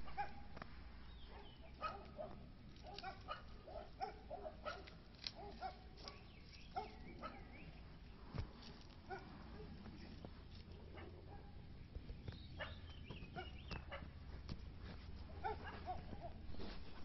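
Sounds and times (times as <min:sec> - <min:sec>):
dog barking: 0:00.0 - 0:00.5, 0:01.3 - 0:07.6, 0:09.1 - 0:09.8, 0:10.9 - 0:11.6, 0:12.6 - 0:14.1, 0:15.3 - 0:16.5.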